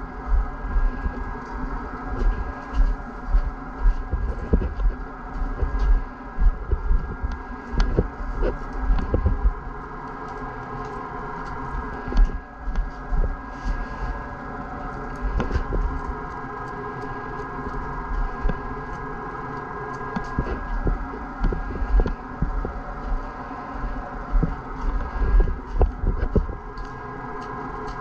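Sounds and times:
steady mechanical hum: 0:00.0 - 0:28.0
low thumps and handling clicks: 0:03.3 - 0:09.6, 0:15.3 - 0:16.0, 0:18.2 - 0:18.6, 0:20.2 - 0:22.8, 0:24.3 - 0:26.8.

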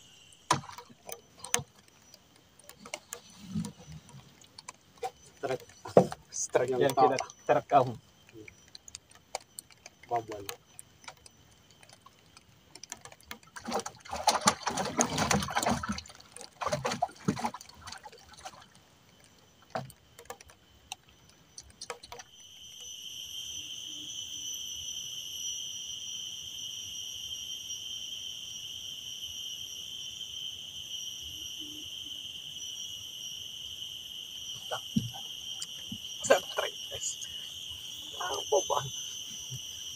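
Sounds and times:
shrill insect buzz: 0:00.0 - 0:04.4, 0:21.4 - 0:39.9
water splashing and sloshing: 0:00.2 - 0:22.4, 0:34.6 - 0:39.9.

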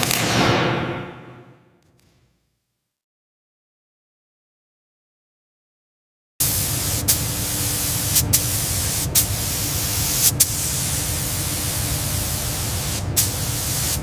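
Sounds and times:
paint spray gun hissing: 0:06.4 - 0:14.0.

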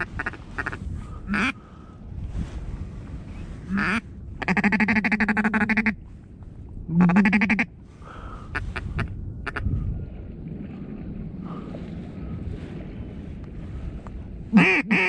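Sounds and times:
duck quacking: 0:00.0 - 0:01.6, 0:03.7 - 0:06.0, 0:07.0 - 0:07.7, 0:14.6 - 0:15.0.

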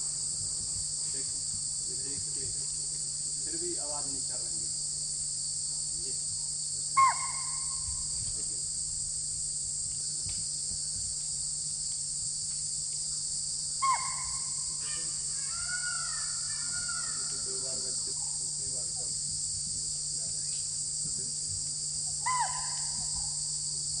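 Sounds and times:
high drone of insects: 0:00.0 - 0:24.0
deer alarm calls: 0:22.2 - 0:23.1.

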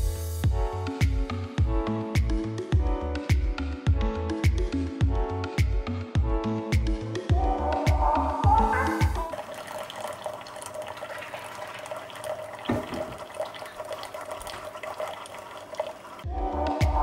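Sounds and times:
background music: 0:00.0 - 0:10.2, 0:16.2 - 0:17.0
coffee pouring into a mug: 0:08.7 - 0:16.3
coffee maker humming: 0:08.8 - 0:16.3
knock: 0:12.7 - 0:13.1.

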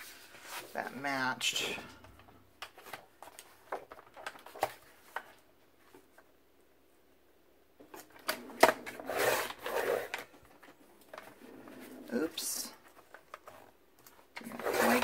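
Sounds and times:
trimmer blade scraping through paper: 0:14.4 - 0:15.0.

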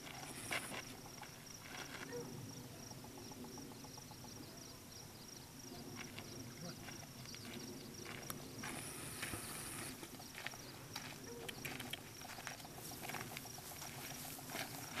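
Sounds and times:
footsteps on gravel: 0:00.0 - 0:02.3, 0:05.8 - 0:15.0
puppy paws crunching on gravel: 0:00.0 - 0:02.4, 0:05.8 - 0:15.0.

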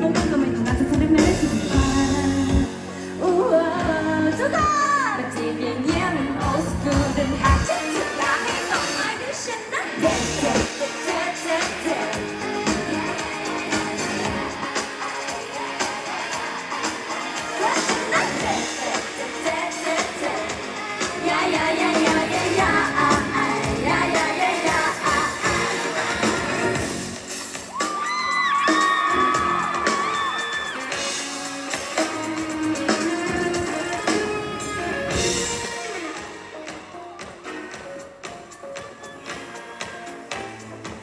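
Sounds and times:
women singing into microphones: 0:00.0 - 0:26.6
live band music: 0:00.0 - 0:41.0.

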